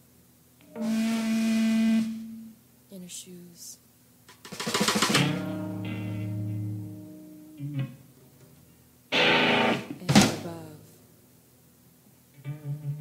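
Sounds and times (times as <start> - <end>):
guitar chord ringing: 0.6 - 2.6, 5.2 - 8.1, 9.1 - 10.0.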